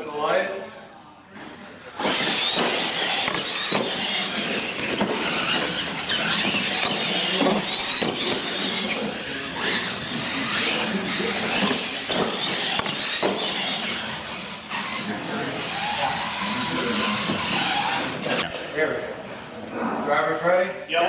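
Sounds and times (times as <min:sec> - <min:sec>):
rc truck motors whining: 0:01.4 - 0:18.5.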